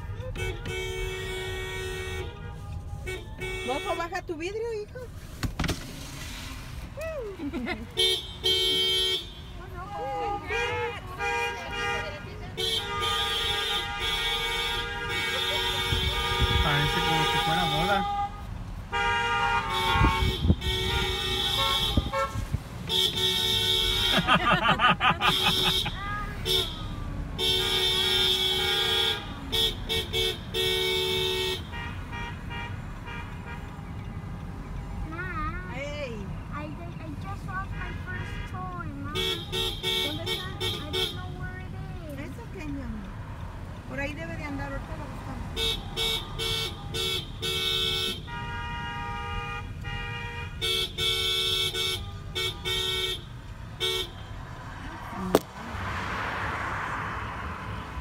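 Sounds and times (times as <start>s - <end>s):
faint honking: 0.0s - 4.8s, 7.9s - 34.5s, 35.2s - 42.7s, 44.1s - 55.2s.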